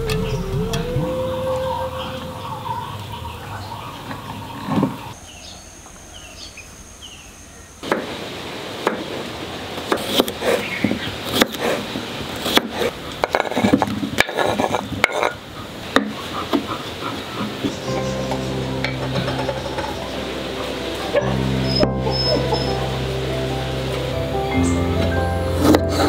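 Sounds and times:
high insect drone: 5.2 - 8.4.

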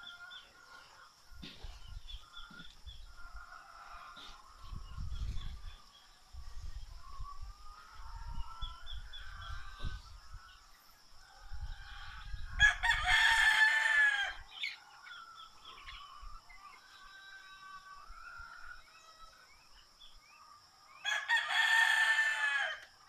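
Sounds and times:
small birds chirping: 0.0 - 21.7
rooster crowing: 11.6 - 14.8, 21.0 - 22.9.

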